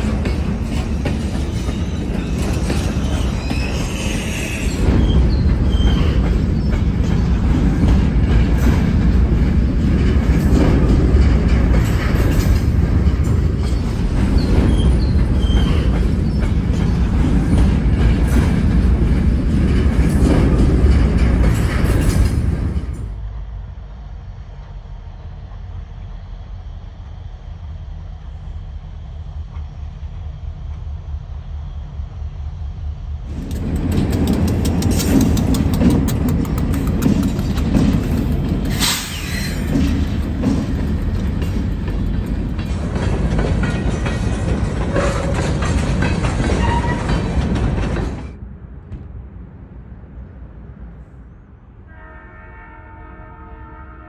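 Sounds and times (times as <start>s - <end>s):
freight cars rolling on rails: 0.0s - 51.0s
diesel locomotive engine rumble: 0.0s - 54.0s
diesel locomotive horn: 51.8s - 54.0s.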